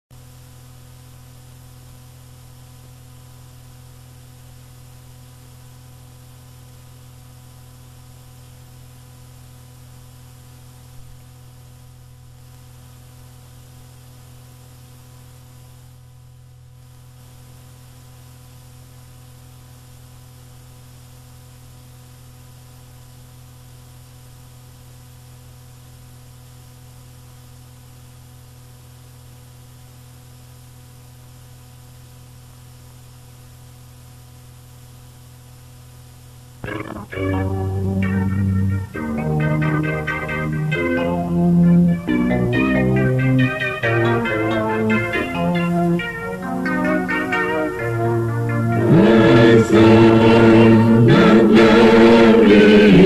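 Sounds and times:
low electrical hum: 0.1 - 53.0
steady hiss: 32.0 - 53.0.

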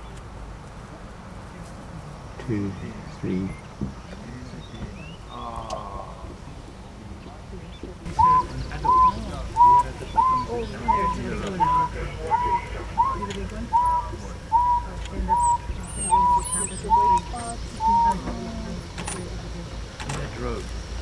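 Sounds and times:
faint high bird chirps: 7.7 - 18.2
bird hooting: 8.1 - 18.6.

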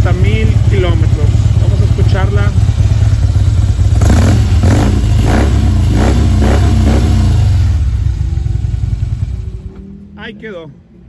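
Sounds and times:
motorcycle engine revving and idling: 0.0 - 11.0.

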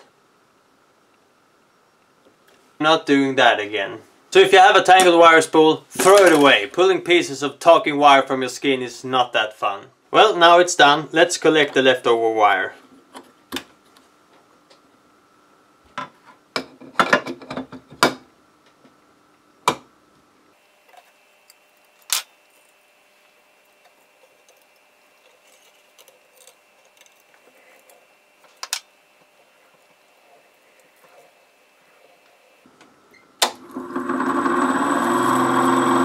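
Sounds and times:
wire recorder hum: 18.6 - 36.0.

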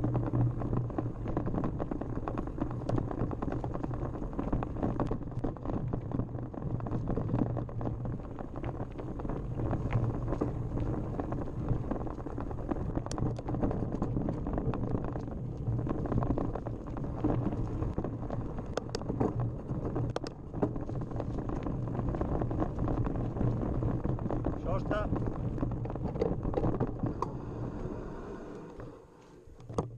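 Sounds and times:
bike rattling over dirt trail: 0.0 - 27.6
sharp clicks and knocks: 12.9 - 21.7, 22.3 - 27.3, 29.5 - 29.9.

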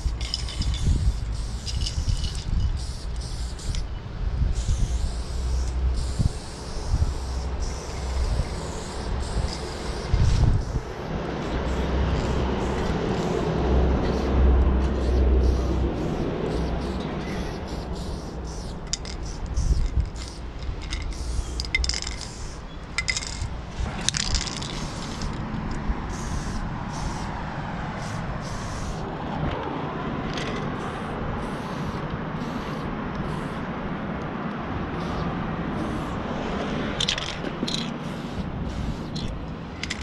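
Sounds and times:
spray can hissing: 0.0 - 3.9, 4.6 - 14.3, 14.9 - 23.4, 24.1 - 25.4, 26.1 - 27.3, 28.0 - 29.0, 30.8 - 33.6, 37.7 - 39.3
low rumble: 7.0 - 27.2.

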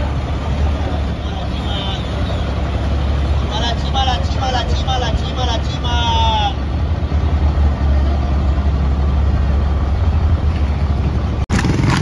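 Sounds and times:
bus engine low rumble: 0.0 - 12.0.

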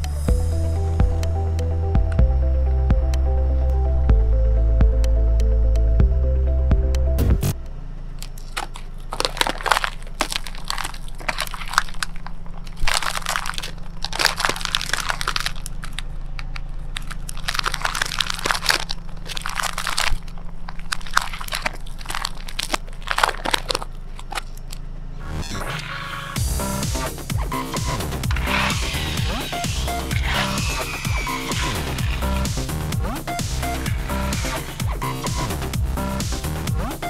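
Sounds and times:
steady low hum: 0.0 - 37.0
paper crunching under car tyre: 8.1 - 25.1, 25.7 - 36.2.

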